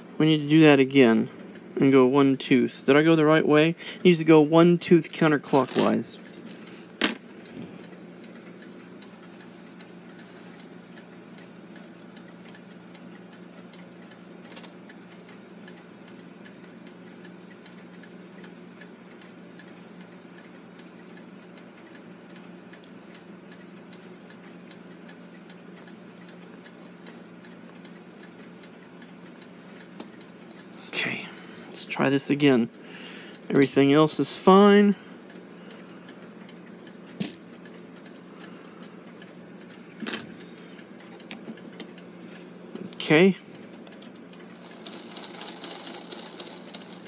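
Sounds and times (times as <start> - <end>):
low steady hum: 0.0 - 47.0
mechanical clock ticking: 7.4 - 30.8
small metal parts clattering: 44.4 - 47.0.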